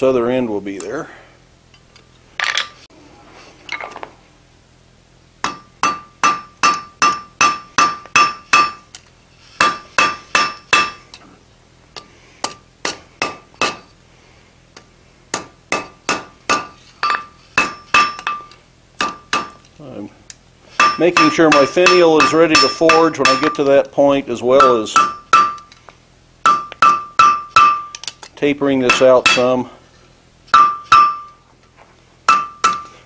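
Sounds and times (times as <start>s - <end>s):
hammer striking iron on anvil: 5.4s - 8.9s, 9.6s - 11.1s, 12.4s - 13.9s, 15.3s - 19.7s, 20.8s - 23.7s, 24.6s - 25.7s, 26.4s - 28.1s, 28.8s - 29.6s, 30.5s - 31.4s, 32.3s - 33.0s.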